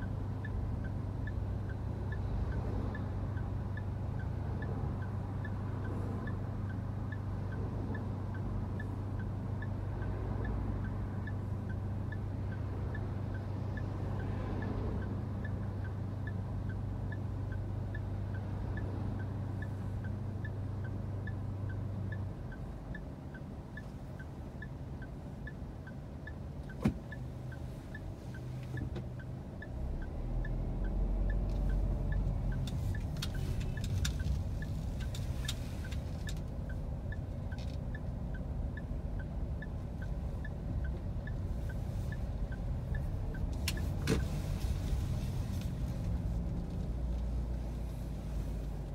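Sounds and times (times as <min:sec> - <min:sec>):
car engine humming: 0:00.0 - 0:48.9
turn signal ticking: 0:00.0 - 0:48.9
car pulling away rumble: 0:28.3 - 0:48.9.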